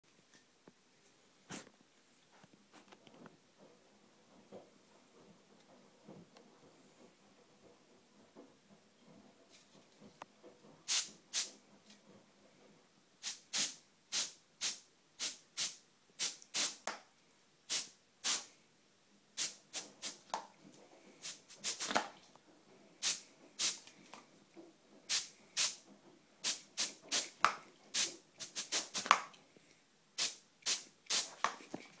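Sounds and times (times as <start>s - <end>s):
spray can hissing puffs: 10.9s - 11.5s, 13.2s - 16.9s, 17.7s - 18.5s, 19.4s - 20.3s, 21.2s - 22.0s, 23.0s - 23.8s, 25.1s - 25.8s, 26.4s - 29.2s, 30.2s - 31.6s.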